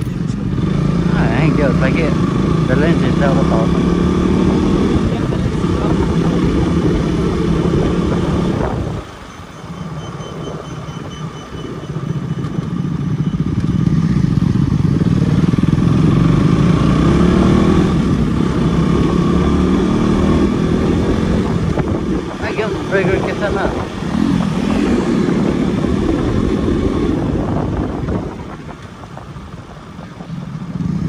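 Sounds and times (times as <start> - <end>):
motorcycle engine accelerating: 0.0 - 31.0.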